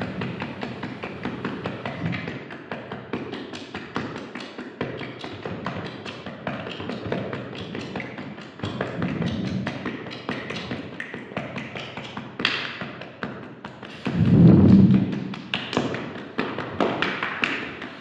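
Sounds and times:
low murmur: 0:14.0 - 0:15.4.

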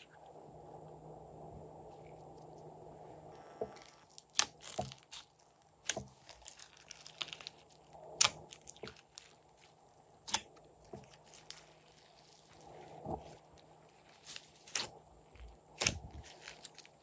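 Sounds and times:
sticky slime pops and crackles: 0:03.8 - 0:09.4, 0:15.7 - 0:17.0.

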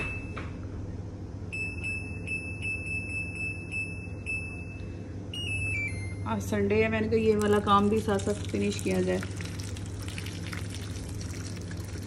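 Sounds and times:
washing machine high beep: 0:00.0 - 0:00.6, 0:01.5 - 0:06.5.

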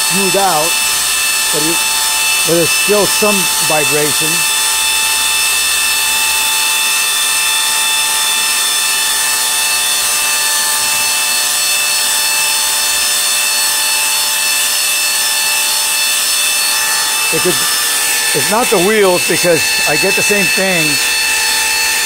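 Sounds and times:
belt grinder whirring: 0:00.0 - 0:22.0.

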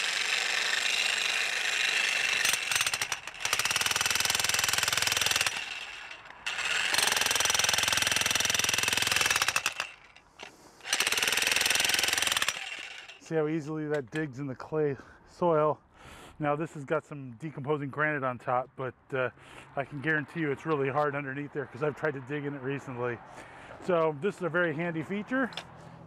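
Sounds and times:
jackhammer hammering into soil: 0:00.0 - 0:13.3.

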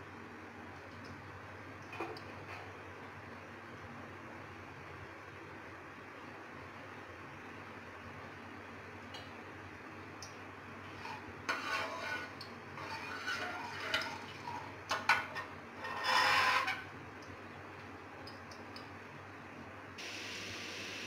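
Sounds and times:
ladle scraping metal pan: 0:10.8 - 0:16.9.

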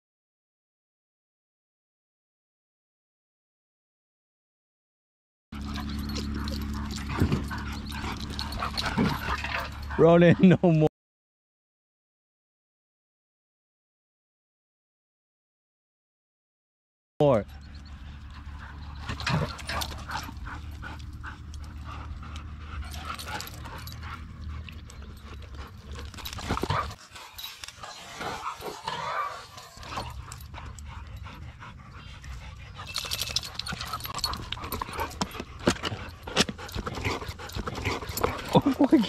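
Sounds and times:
dogs panting: 0:05.6 - 0:10.9, 0:17.4 - 0:39.0
dogs scuffling: 0:18.8 - 0:30.6.

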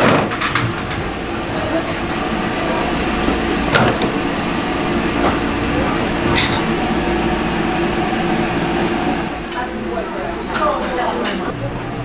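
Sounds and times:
equipment hum: 0:00.0 - 0:12.0
indistinct voices: 0:00.5 - 0:12.0.

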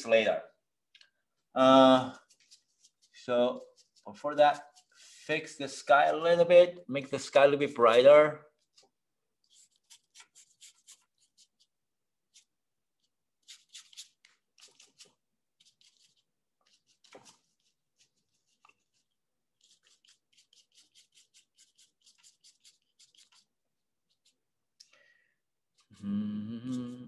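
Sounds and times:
paintbrush strokes on paper: 0:01.8 - 0:06.4, 0:08.5 - 0:24.5.

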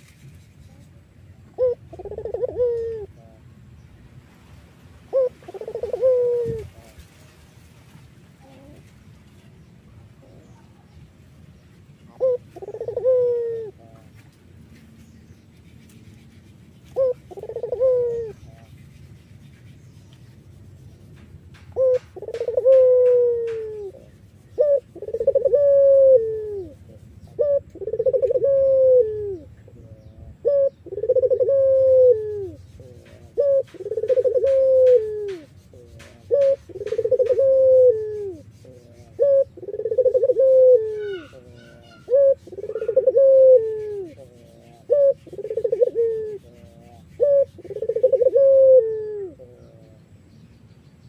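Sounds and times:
dove cooing: 0:01.5 - 0:03.4, 0:05.1 - 0:07.0, 0:08.4 - 0:08.9, 0:12.1 - 0:14.1, 0:16.1 - 0:19.3, 0:21.8 - 0:50.2.

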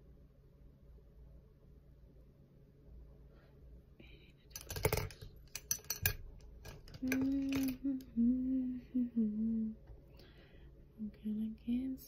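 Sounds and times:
small clicks and rattles: 0:04.5 - 0:08.1
woman humming: 0:07.0 - 0:09.8.

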